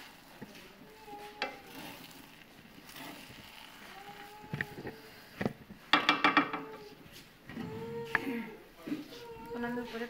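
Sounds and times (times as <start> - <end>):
spatula scraping a pot: 0.0 - 5.6
loud clattering in pot: 5.5 - 6.8
spatula knocking against pot: 5.9 - 6.7.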